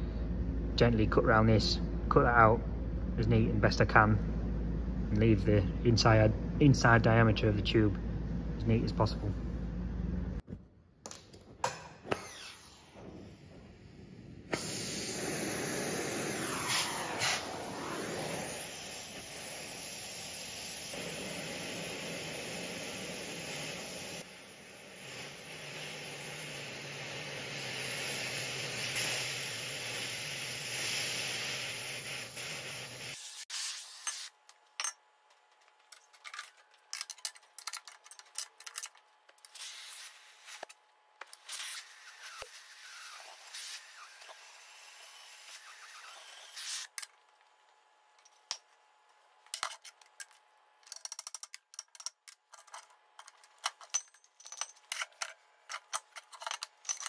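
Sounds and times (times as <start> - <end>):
cutting torch hissing: 12.1 - 34.3, 41.5 - 47.0.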